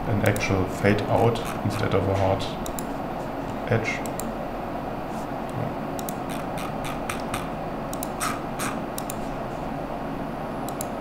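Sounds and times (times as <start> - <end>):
steady background hiss: 0.0 - 11.0
keyboard and mouse clicks: 0.2 - 0.5, 1.4 - 2.9, 6.0 - 9.2, 10.7 - 11.0.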